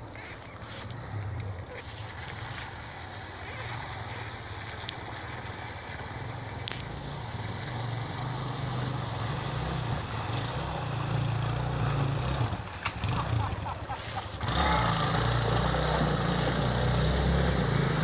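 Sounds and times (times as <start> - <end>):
wheels splashing through water: 0.0 - 18.0
motorcycle engine running: 0.9 - 18.0.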